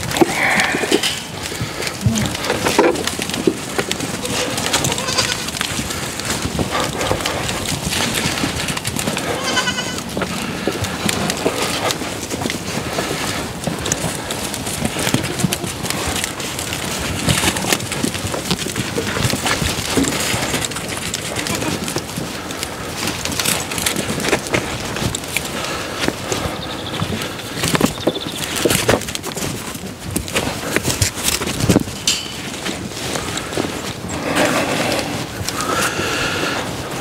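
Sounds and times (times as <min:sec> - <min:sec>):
animals rustling and knocking: 0:00.0 - 0:37.0
goats bleating: 0:04.0 - 0:06.0, 0:09.0 - 0:10.8, 0:14.8 - 0:16.1, 0:21.2 - 0:22.1.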